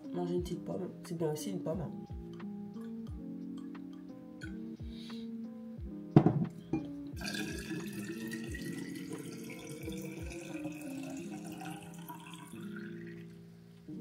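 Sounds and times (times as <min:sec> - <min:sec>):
sharp knock: 0:06.2 - 0:06.6
water running from a tap: 0:07.2 - 0:12.9.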